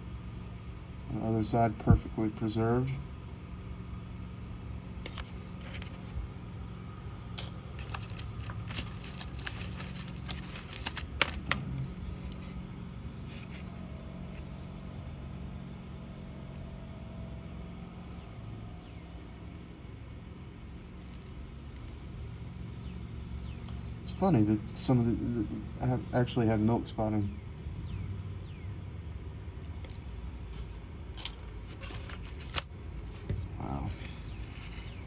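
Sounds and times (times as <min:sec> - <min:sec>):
low background hum: 0:00.0 - 0:35.0
coins clinking: 0:07.3 - 0:11.5, 0:31.2 - 0:31.5, 0:32.3 - 0:32.7.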